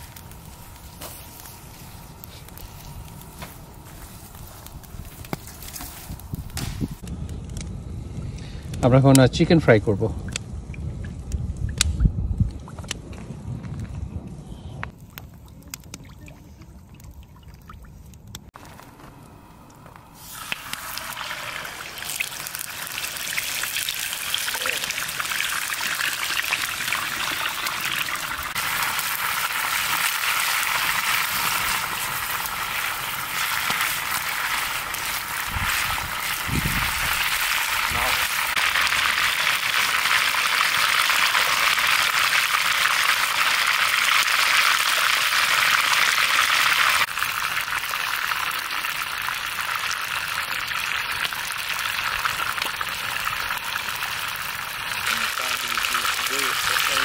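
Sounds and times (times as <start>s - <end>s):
chicken sizzling in hot oil: 0.0s - 7.0s, 20.2s - 57.0s.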